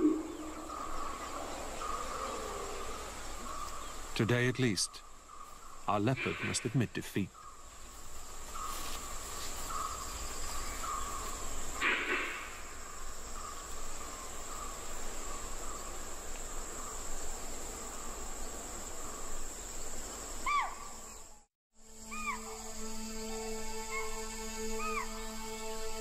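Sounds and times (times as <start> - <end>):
rising and falling call: 0.0 - 3.2
insect chorus drone: 0.0 - 26.0
rustling: 7.7 - 12.6.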